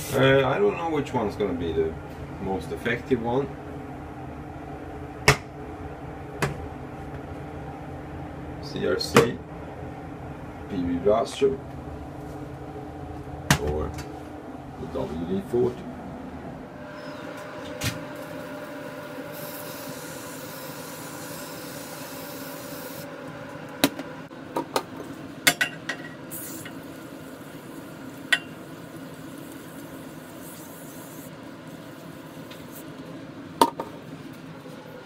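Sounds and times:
steady background hum: 0.0 - 35.0
aerosol spray hissing: 19.3 - 23.1.

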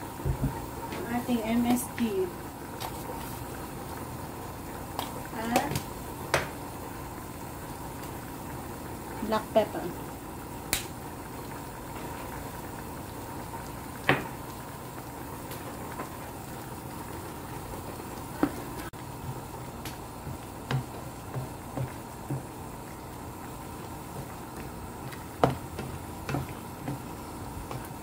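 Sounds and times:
stew bubbling in a pan: 0.0 - 28.0
spatula knocking a pan: 19.2 - 22.5, 25.4 - 27.9.

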